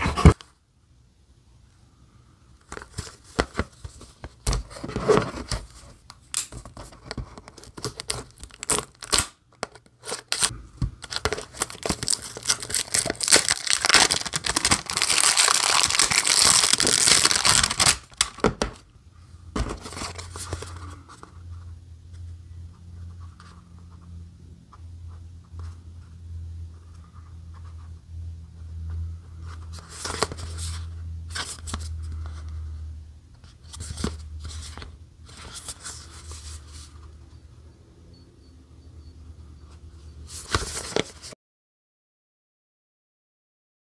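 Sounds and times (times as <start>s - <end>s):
low steady hum: 0.0s - 41.4s
plastic wrap crinkling: 7.6s - 9.2s, 10.1s - 18.4s.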